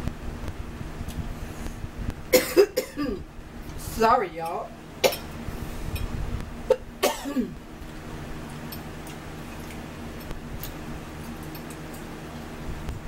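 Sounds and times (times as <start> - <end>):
low room hum: 0.0 - 13.0
person coughing: 2.3 - 3.2, 6.7 - 7.6.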